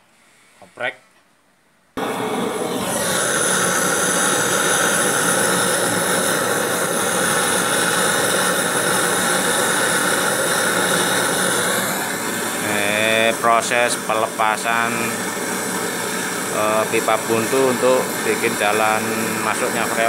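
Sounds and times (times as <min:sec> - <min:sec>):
gas torch hissing: 0:02.0 - 0:20.0.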